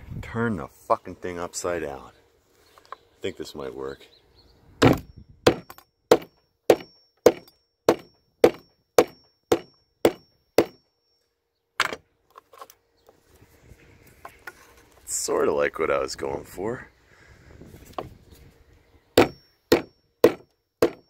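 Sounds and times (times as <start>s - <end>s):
hammer striking a nail into wood: 4.8s - 10.8s, 19.2s - 21.0s.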